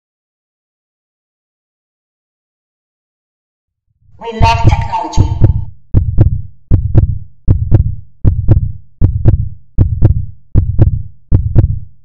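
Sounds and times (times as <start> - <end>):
heartbeat thumps: 4.3 - 12.0.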